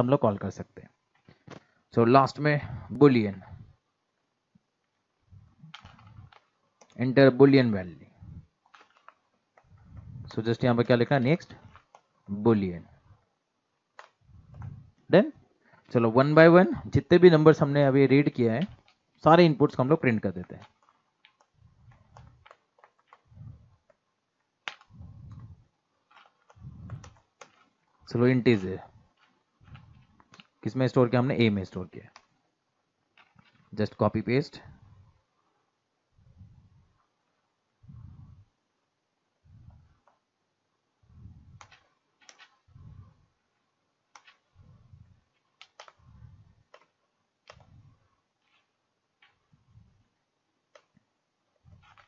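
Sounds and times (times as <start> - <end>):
faint low rumbles: 0.0 - 50.8
low muffled puffs: 1.2 - 3.8, 7.8 - 9.0, 9.6 - 13.3, 14.2 - 16.0, 23.1 - 23.9, 24.8 - 30.6, 34.6 - 40.2, 40.9 - 43.7, 44.3 - 46.8.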